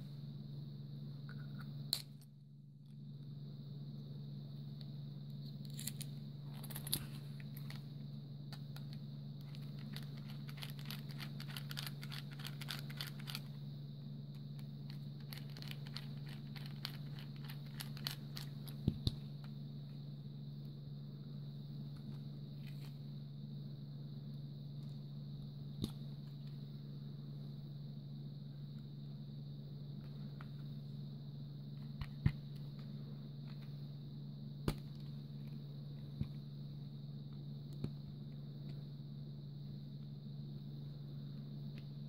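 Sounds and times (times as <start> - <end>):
low hum: 0.0 - 42.0.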